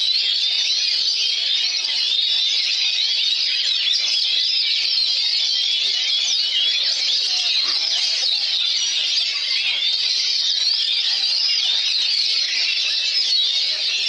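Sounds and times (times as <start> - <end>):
birds singing whistles: 0.0 - 14.0.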